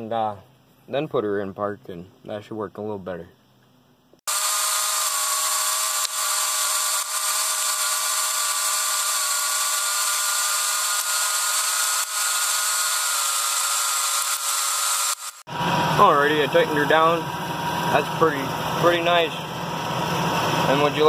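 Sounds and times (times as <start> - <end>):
small motor whining: 4.3 - 16.7.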